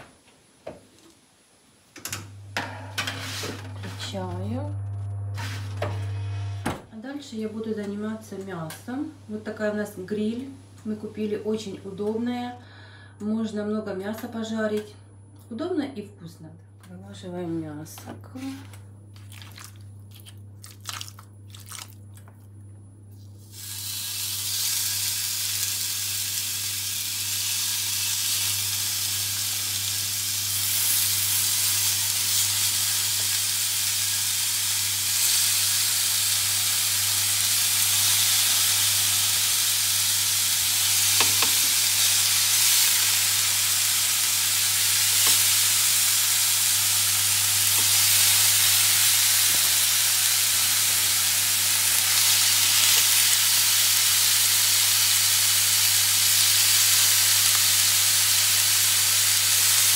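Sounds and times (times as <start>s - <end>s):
steady low hum: 1.6s - 24.4s
pork sizzling on a grill: 23.5s - 59.9s.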